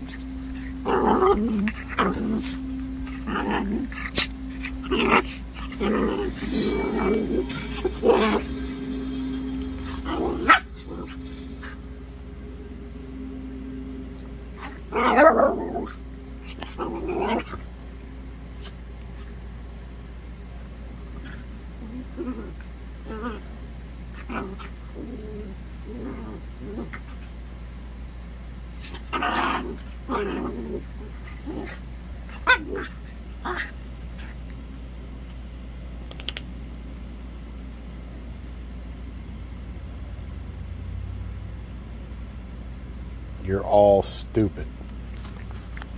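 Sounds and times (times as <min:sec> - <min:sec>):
dogs play-fighting: 0:00.0 - 0:13.3, 0:13.9 - 0:36.4.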